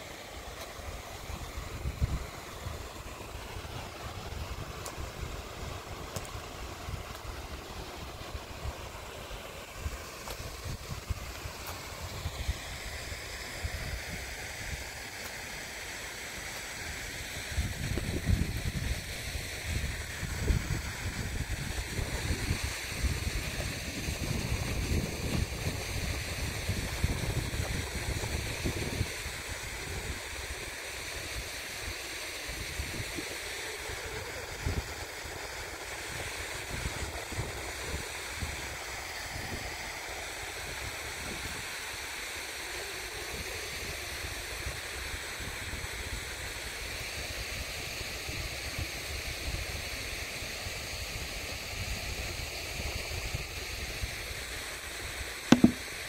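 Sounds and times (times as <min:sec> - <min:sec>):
rushing water: 0:00.0 - 0:51.6, 0:52.8 - 0:56.0
wind buffeting the microphone: 0:01.4 - 0:02.8, 0:17.5 - 0:30.2.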